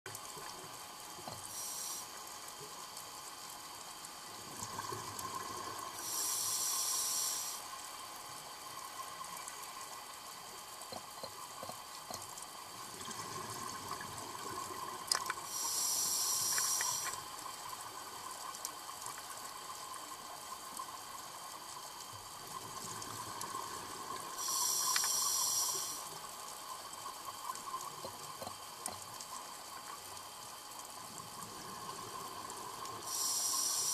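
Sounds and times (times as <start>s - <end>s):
diver breathing through regulator: 6.0s - 7.6s, 15.5s - 17.2s, 24.4s - 26.1s.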